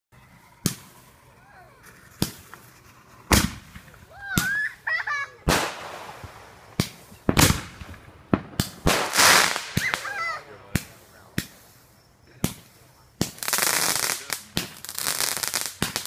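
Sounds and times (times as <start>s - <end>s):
fireworks bangs: 0.2s - 16.0s
fireworks hissing crackle: 0.2s - 16.0s.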